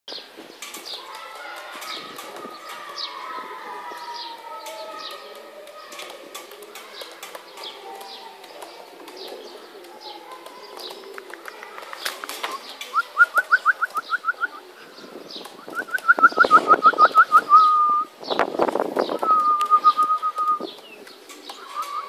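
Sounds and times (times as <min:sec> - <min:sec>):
pigeons cooing: 0:00.8 - 0:22.0.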